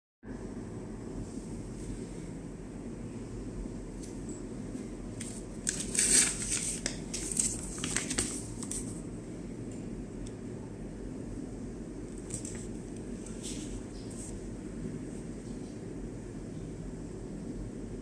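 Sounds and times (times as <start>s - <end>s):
plastic bag crinkling: 5.2s - 9.0s.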